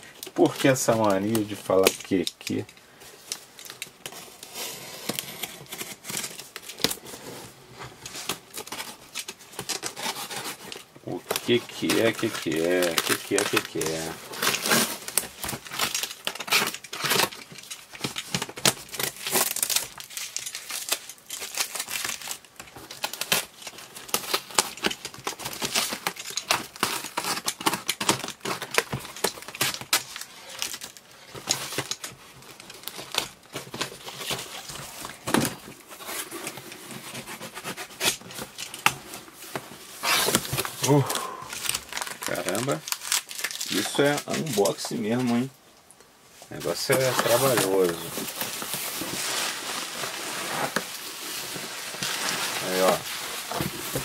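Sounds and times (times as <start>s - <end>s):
box cutter ripping packing tape: 8.1s - 32.2s, 32.8s - 39.0s, 40.0s - 41.0s.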